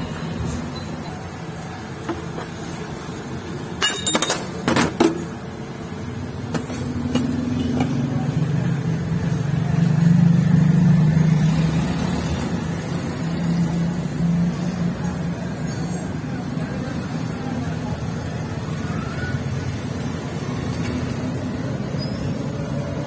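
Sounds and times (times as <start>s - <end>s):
metal clinks on steel stand: 3.8s - 4.9s.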